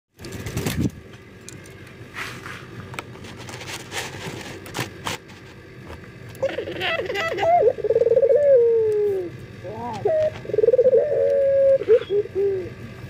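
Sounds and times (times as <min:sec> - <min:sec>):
light clicks and scrapes: 0:01.5 - 0:06.0.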